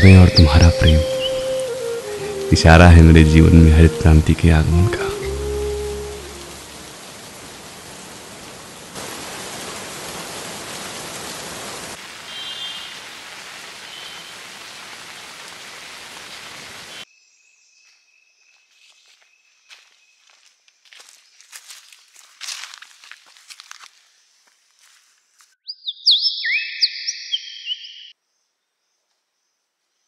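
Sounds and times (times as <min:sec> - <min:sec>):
steady rain hiss: 0:00.0 - 0:17.1
footsteps on leaves: 0:18.5 - 0:25.6.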